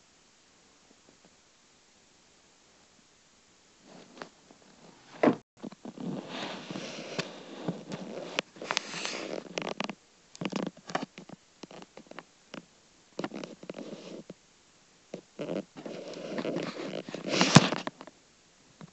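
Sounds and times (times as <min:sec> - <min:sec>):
rustling: 0:03.8 - 0:14.4, 0:15.1 - 0:18.2.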